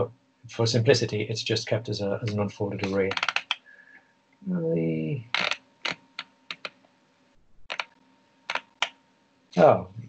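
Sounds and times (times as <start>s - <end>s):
keyboard keystrokes clicking: 2.8s - 3.6s, 5.4s - 6.8s, 7.7s - 7.9s.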